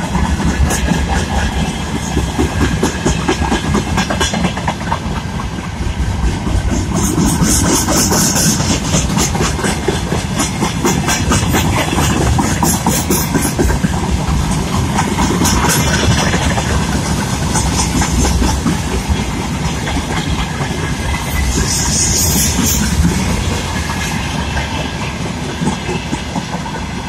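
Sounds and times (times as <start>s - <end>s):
freight train wheels rumbling: 0.0s - 27.0s.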